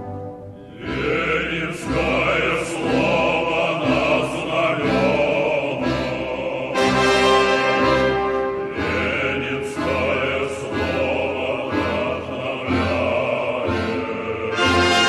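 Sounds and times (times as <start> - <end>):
choir singing long notes: 0.0 - 15.0
orchestral accompaniment: 0.0 - 15.0.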